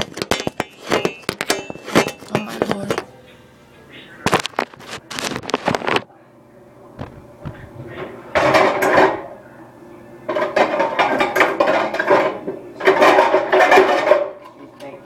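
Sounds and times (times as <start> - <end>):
pots and pans clanking: 0.0 - 3.1, 7.5 - 9.3, 10.3 - 14.6.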